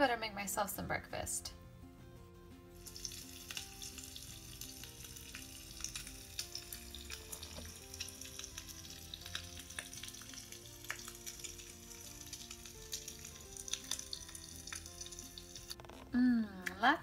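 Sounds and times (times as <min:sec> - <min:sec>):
soft background music: 0:00.0 - 0:17.0
frying sizzle with crackles: 0:02.8 - 0:15.8.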